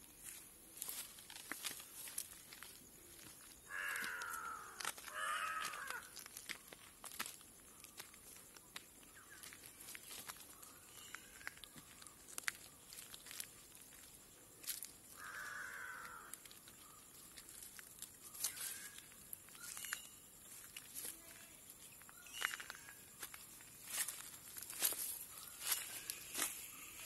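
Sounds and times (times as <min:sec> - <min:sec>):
faint birdsong: 0:00.0 - 0:27.0
footsteps on gravel and leaves: 0:00.0 - 0:27.0
crow cawing: 0:03.6 - 0:06.2, 0:15.1 - 0:16.6.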